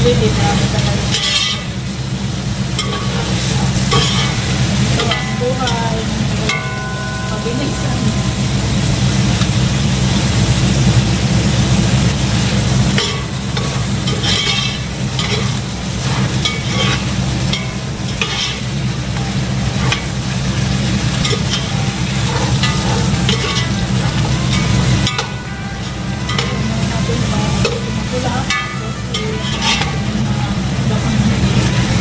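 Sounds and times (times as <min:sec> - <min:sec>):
food sizzling: 0:00.0 - 0:32.0
steady low hum: 0:00.0 - 0:32.0
metal ladle scraping a pot: 0:01.0 - 0:01.8, 0:02.8 - 0:05.8, 0:13.0 - 0:20.4, 0:21.0 - 0:30.7.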